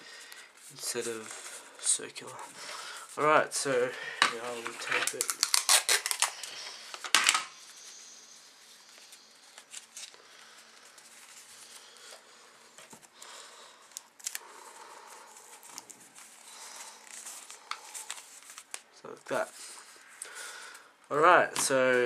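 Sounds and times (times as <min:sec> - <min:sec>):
paper rustling: 0:04.3 - 0:08.0, 0:08.7 - 0:12.2, 0:13.9 - 0:20.0
sticky tape tearing: 0:04.5 - 0:06.5.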